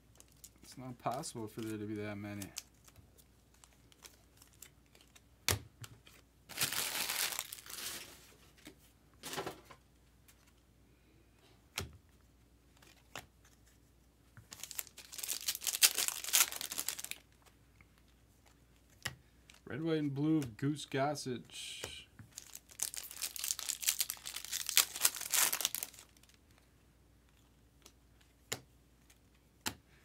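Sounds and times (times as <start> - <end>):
card pack wrappers tearing and crinkling: 0.1 - 5.2, 6.5 - 8.2, 14.5 - 17.3, 22.3 - 26.4.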